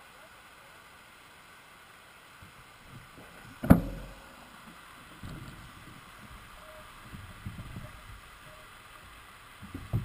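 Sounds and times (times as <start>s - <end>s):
stream water running: 0.0s - 10.0s
low bumps: 2.4s - 8.3s, 9.6s - 10.0s.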